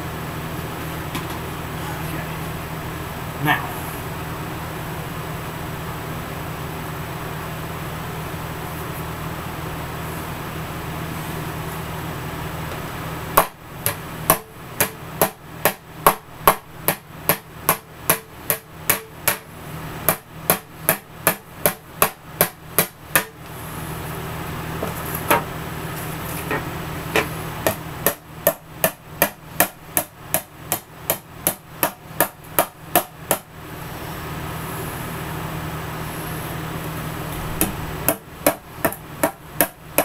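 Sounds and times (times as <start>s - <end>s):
hammer striking metal plate: 13.4s - 19.5s, 20.1s - 23.4s.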